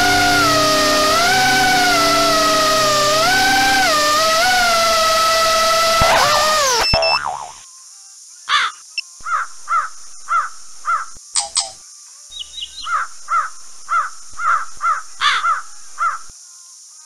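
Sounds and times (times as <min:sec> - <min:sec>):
steady high hiss: 0:00.0 - 0:06.9
bird harsh repeated calls: 0:08.6 - 0:11.2, 0:12.4 - 0:16.3.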